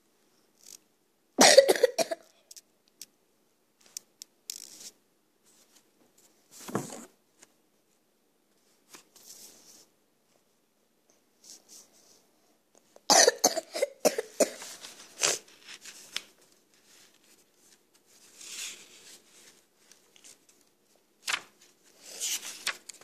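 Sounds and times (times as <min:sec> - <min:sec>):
person coughing: 0:01.4 - 0:02.3, 0:13.1 - 0:14.6.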